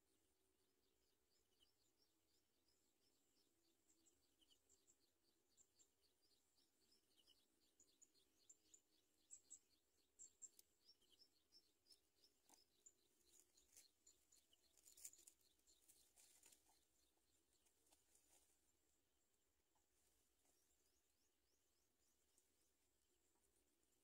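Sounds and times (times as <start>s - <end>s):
dry grass and leaves crackling: 12.2s - 18.8s.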